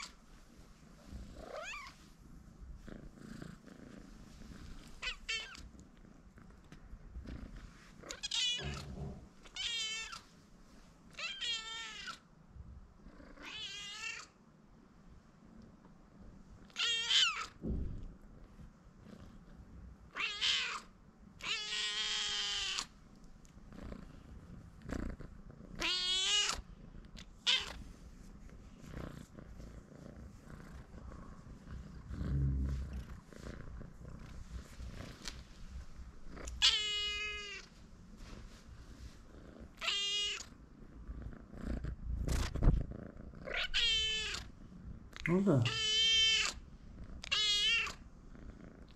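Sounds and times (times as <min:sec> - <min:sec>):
cat meowing loudly: 0:08.2 - 0:10.2, 0:45.6 - 0:46.6, 0:47.3 - 0:48.0.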